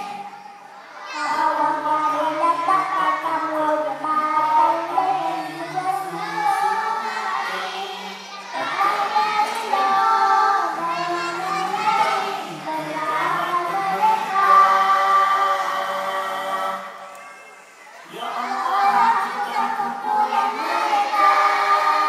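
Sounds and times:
children singing together: 0.0 - 22.0.

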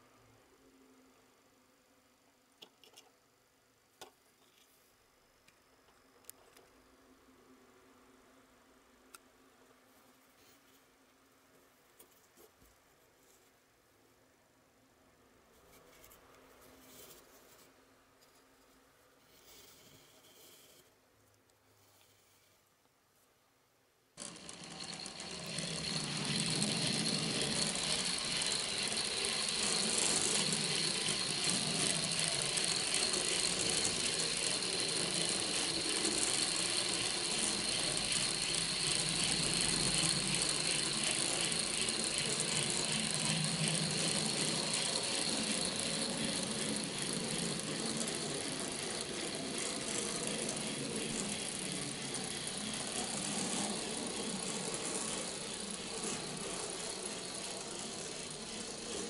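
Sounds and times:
gear rattle: 24.2 - 59.0
model locomotive motor whirring: 24.2 - 59.0
thin high whine: 24.2 - 59.0.

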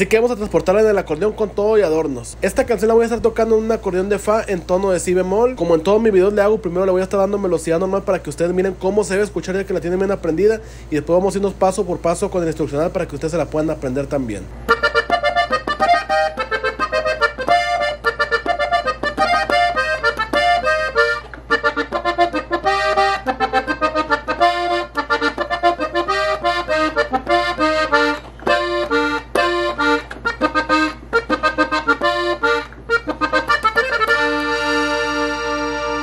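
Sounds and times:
button accordion playing: 14.6 - 36.0.

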